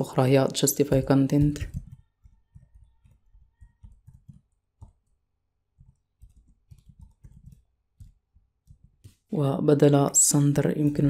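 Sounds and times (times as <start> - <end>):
faint keyboard typing: 0.8 - 9.3.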